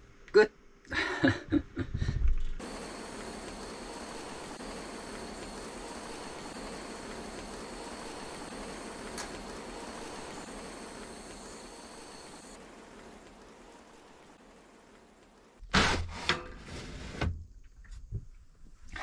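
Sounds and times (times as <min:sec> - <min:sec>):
light rain on a van roof: 0:02.6 - 0:15.6.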